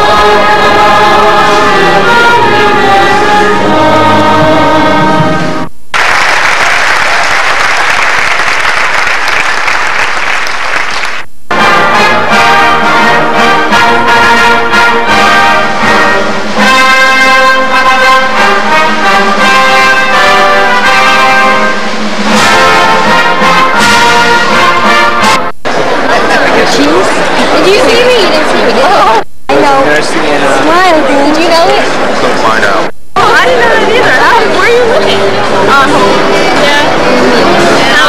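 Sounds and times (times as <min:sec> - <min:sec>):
audience applause: 0:05.9 - 0:11.3
concert band playing: 0:11.5 - 0:29.2.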